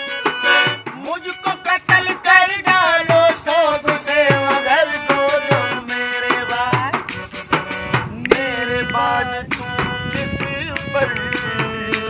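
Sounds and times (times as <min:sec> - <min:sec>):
frame drum with jingles: 0:00.0 - 0:12.0
harmonium melody: 0:00.0 - 0:12.0
people singing: 0:01.0 - 0:07.2, 0:08.0 - 0:12.0.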